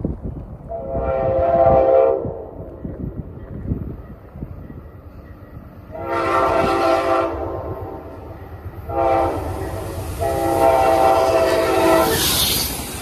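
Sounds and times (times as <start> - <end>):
low train rumble: 0.0 - 13.0
train passing rush: 0.0 - 13.0
locomotive air horn blasts: 0.7 - 2.4, 5.9 - 8.1, 8.9 - 12.7.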